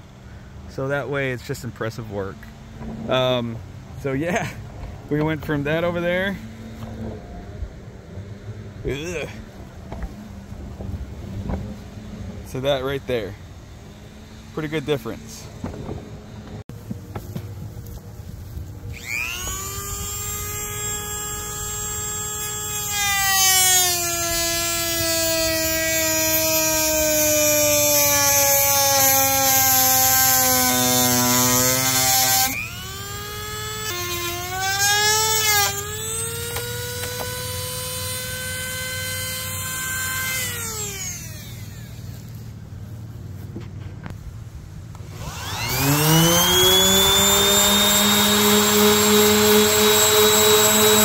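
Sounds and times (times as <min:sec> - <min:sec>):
power tool whining: 0:18.7 - 0:42.7, 0:44.9 - 0:51.0.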